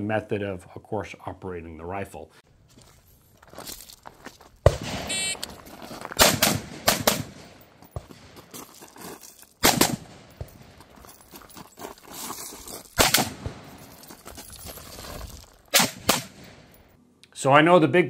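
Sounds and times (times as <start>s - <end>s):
rifle firing shots: 4.7s - 5.4s, 6.2s - 8.4s, 9.6s - 10.7s, 13.0s - 13.8s, 15.7s - 16.7s.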